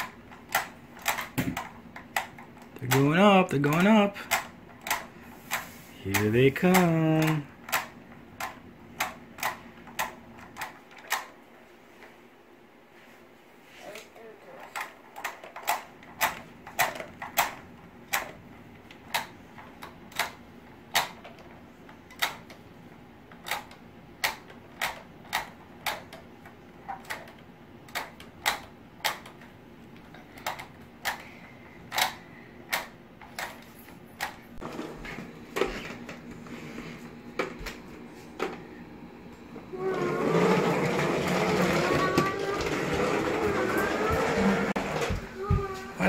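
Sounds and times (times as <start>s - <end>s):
plastic toy clicks: 22.1s - 22.6s, 27.0s - 29.5s
plastic toy wheels rolling on wood: 39.7s - 45.5s.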